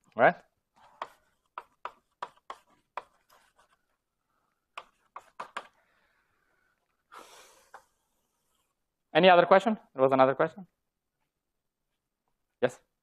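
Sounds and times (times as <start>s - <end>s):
writing taps on a board: 0.8s - 3.3s, 4.7s - 5.8s.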